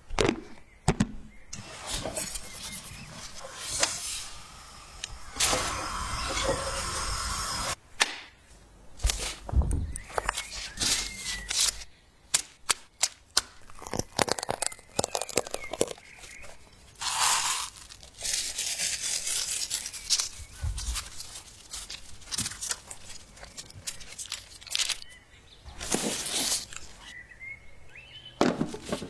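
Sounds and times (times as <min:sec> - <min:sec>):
parchment paper rustling: 0:01.6 - 0:04.3, 0:09.0 - 0:11.9, 0:13.6 - 0:27.2.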